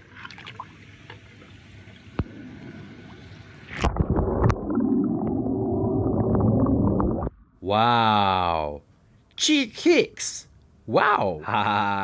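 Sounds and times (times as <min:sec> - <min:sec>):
muffled underwater bubbling: 0:02.0 - 0:07.4.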